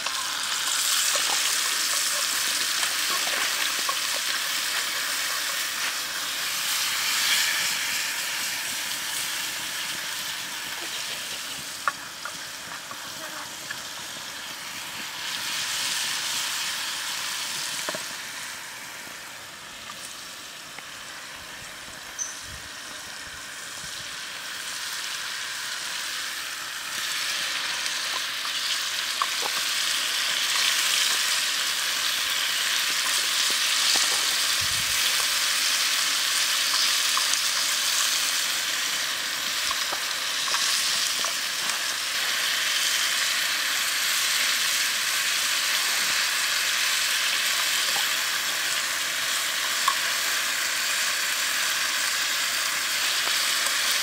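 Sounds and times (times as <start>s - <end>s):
oil sizzling in a metal pan: 0.0s - 54.0s.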